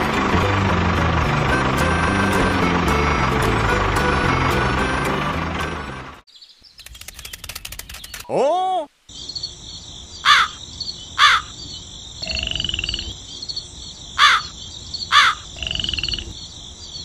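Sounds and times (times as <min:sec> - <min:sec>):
frog croaking: 0:09.1 - 0:17.0
crows cawing: 0:10.2 - 0:10.6, 0:11.2 - 0:11.6, 0:14.2 - 0:15.5.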